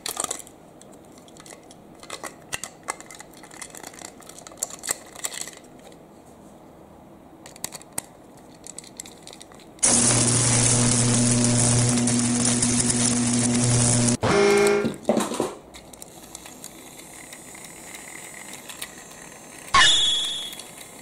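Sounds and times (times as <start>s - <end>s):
plastic toy pieces clicking: 0.0s - 6.0s, 7.4s - 9.8s, 15.7s - 19.7s.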